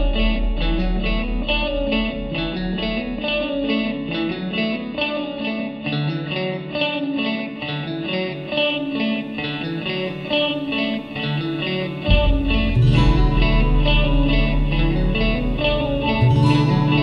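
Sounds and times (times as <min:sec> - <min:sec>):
heavy low bass: 0:00.0 - 0:04.0, 0:12.1 - 0:17.0
electric guitar picking: 0:00.0 - 0:17.0.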